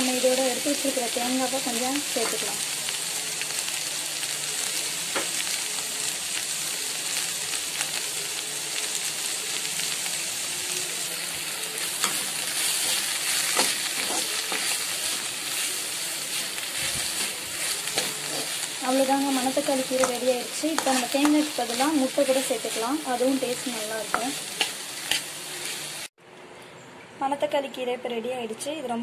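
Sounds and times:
greens sizzling in a pan: 0:00.0 - 0:26.1
metal spoon scraping a pan: 0:11.7 - 0:15.7, 0:16.3 - 0:22.8, 0:24.1 - 0:26.0.

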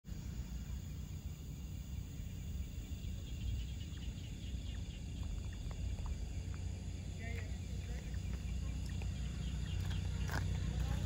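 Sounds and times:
insects chirping: 0:00.1 - 0:11.0
low rumble: 0:00.1 - 0:11.0.

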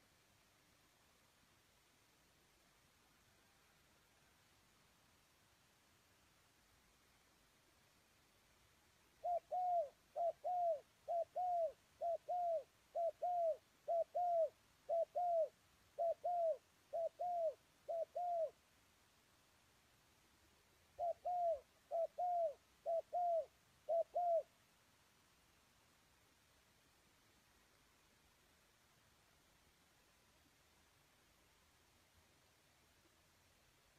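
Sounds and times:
dove cooing: 0:09.2 - 0:18.6, 0:21.0 - 0:24.5.

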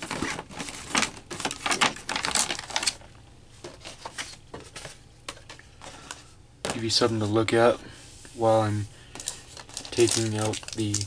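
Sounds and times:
paper and plastic tray rustling: 0:00.0 - 0:07.7, 0:08.4 - 0:11.0.

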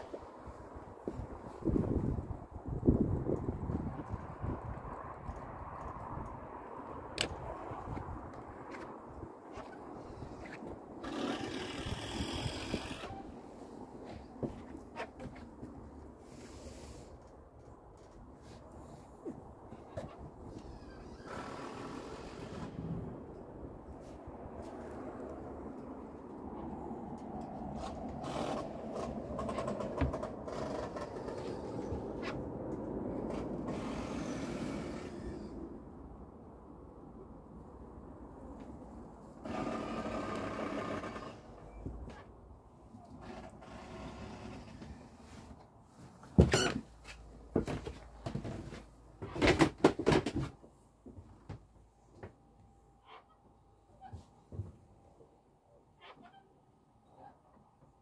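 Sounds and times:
wind rumbling on microphone: 0:00.0 - 0:16.1
footsteps on wooden steps: 0:14.0 - 0:16.0.

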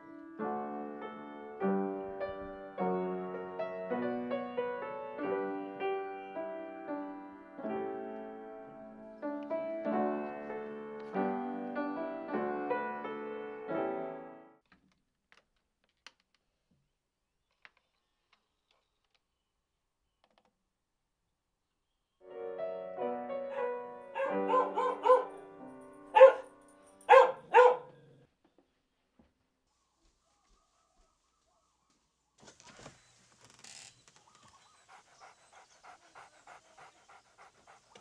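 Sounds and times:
upright piano playing: 0:00.0 - 0:14.6, 0:22.2 - 0:27.8
dog barking: 0:23.4 - 0:25.5, 0:26.1 - 0:28.2.

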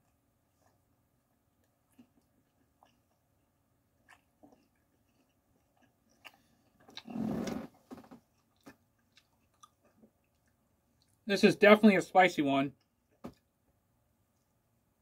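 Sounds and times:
person chewing: 0:00.0 - 0:07.6, 0:08.2 - 0:11.2.

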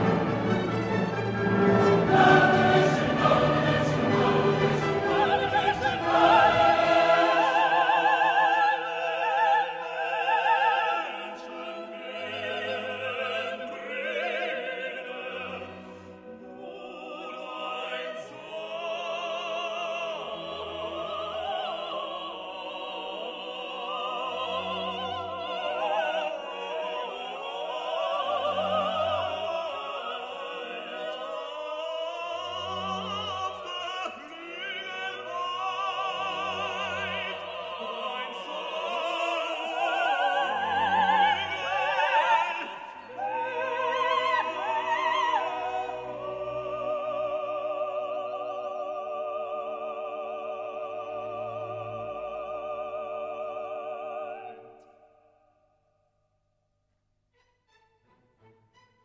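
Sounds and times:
sustained accompaniment: 0:00.0 - 0:19.0
operatic singing voice: 0:00.0 - 0:55.1.

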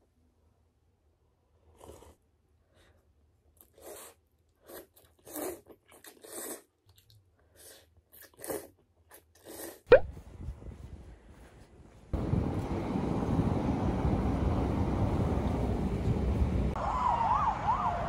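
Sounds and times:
person slurping noodles: 0:01.6 - 0:02.3, 0:03.6 - 0:06.8, 0:07.5 - 0:10.0.

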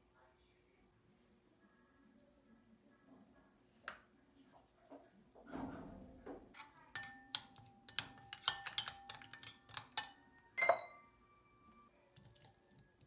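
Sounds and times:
metal spoon clinking on glass bowl: 0:06.6 - 0:11.0.

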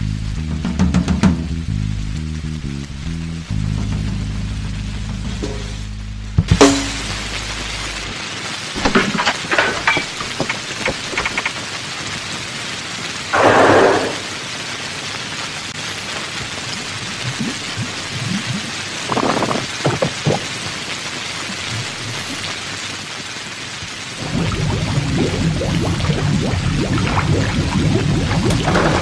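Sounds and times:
heavy rain falling: 0:00.0 - 0:29.0
thunder crackling: 0:06.3 - 0:12.3, 0:13.3 - 0:14.6, 0:16.2 - 0:20.7, 0:24.2 - 0:29.0.

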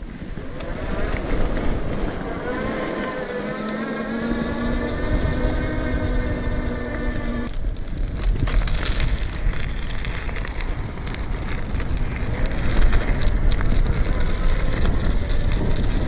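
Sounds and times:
bicycle tyres crunching gravel: 0:00.0 - 0:16.0
wind on microphone: 0:00.0 - 0:16.0.

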